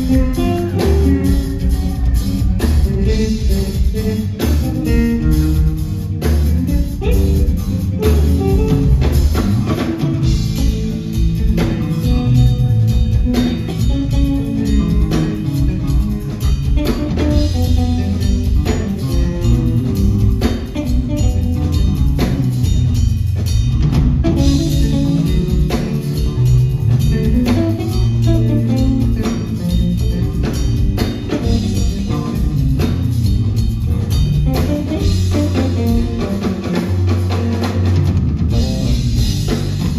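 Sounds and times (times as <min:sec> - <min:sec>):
drum kit playing: 0:00.0 - 0:39.9
electric bass guitar: 0:00.0 - 0:39.9.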